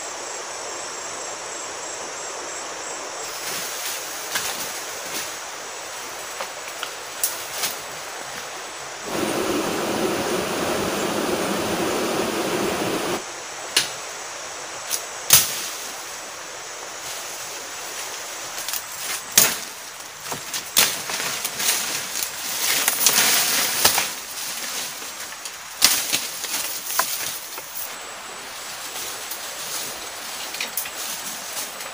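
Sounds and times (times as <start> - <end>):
steady rushing noise: 9.0 - 13.3
twigs snapping and brush rustling: 18.6 - 27.9.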